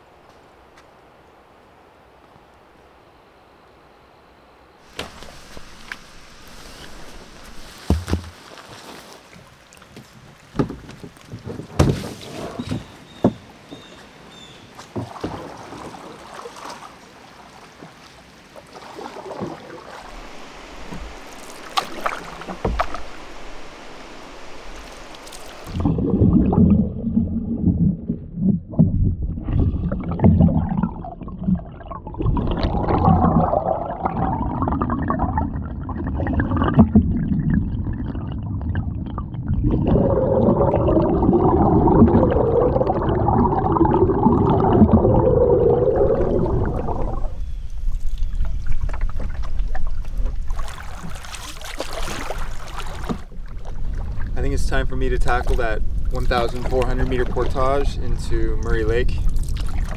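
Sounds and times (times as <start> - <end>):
faint water sounds: 0.0 - 59.9
sharp knocks on canoe: 4.9 - 5.3, 7.8 - 8.4, 10.5 - 13.9, 21.7 - 23.2
muffled underwater paddle strokes: 4.9 - 14.1, 14.7 - 26.8, 45.9 - 59.9
water gurgling: 18.6 - 59.9.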